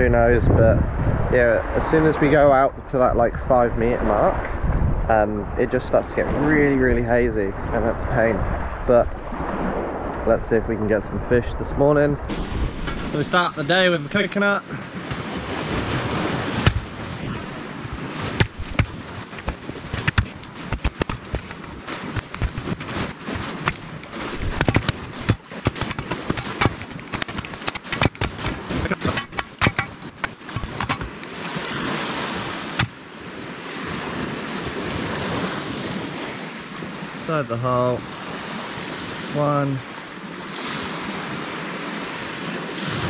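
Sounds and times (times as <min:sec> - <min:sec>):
surf: 0:00.0 - 0:43.0
machete chopping coconut husk: 0:15.9 - 0:17.0, 0:17.9 - 0:31.2, 0:32.8 - 0:33.0.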